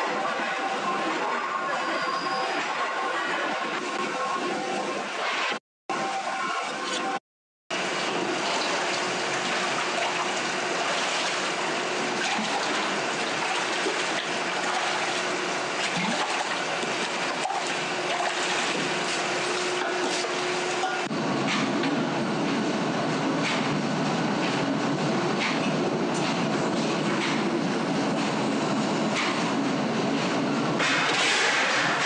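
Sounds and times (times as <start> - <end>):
water splashing and sloshing: 6.8 - 32.0.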